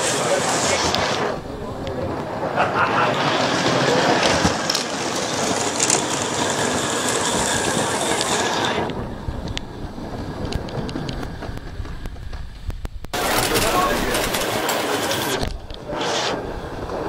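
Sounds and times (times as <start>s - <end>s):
steam hiss: 0.0s - 1.5s, 13.2s - 17.0s
locomotive and wagons rattling: 0.0s - 17.0s
wheels clicking on rail: 0.0s - 17.0s.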